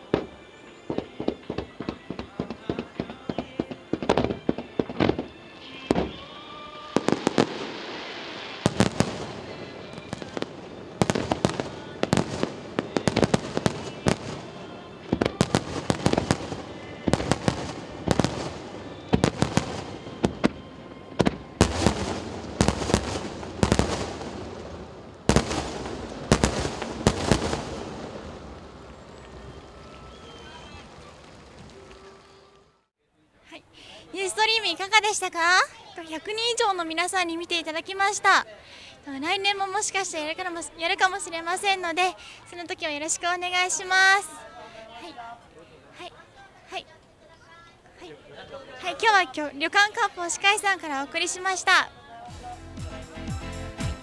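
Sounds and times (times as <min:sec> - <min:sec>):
firework crackling: 0:00.0 - 0:32.9
firework shells bursting: 0:21.2 - 0:29.6.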